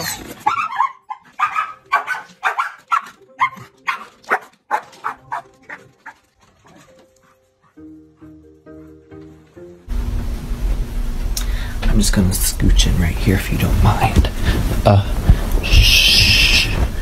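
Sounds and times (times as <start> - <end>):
dog barking rapidly: 0.0 - 6.2.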